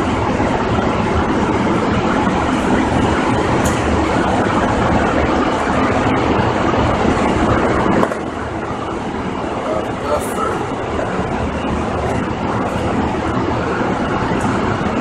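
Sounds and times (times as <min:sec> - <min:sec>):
blower rushing air: 0:00.0 - 0:15.0.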